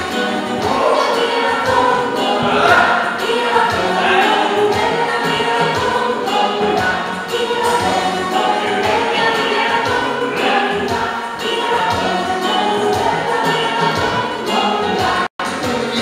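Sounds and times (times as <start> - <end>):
choir singing with accompaniment: 0.0 - 16.0.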